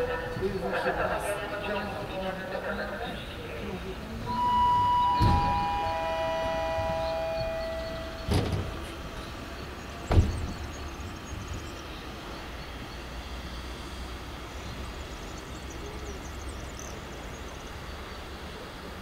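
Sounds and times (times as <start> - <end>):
three-note chime: 4.3 - 8.2.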